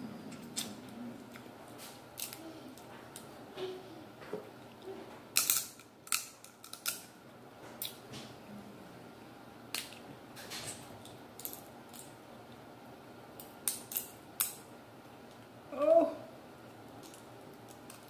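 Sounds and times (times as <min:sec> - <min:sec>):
crab shell cracking: 0:05.4 - 0:07.1.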